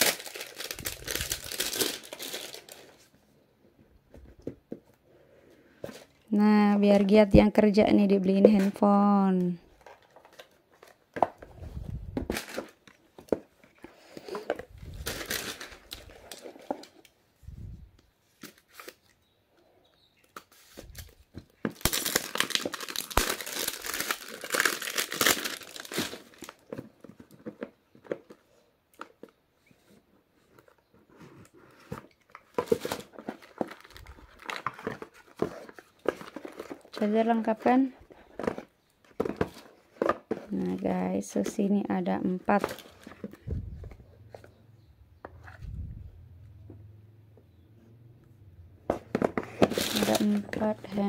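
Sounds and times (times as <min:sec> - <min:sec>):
plastic packaging crinkling: 0:00.0 - 0:03.1, 0:09.8 - 0:17.1, 0:20.3 - 0:28.4, 0:32.1 - 0:41.6, 0:49.2 - 0:51.0.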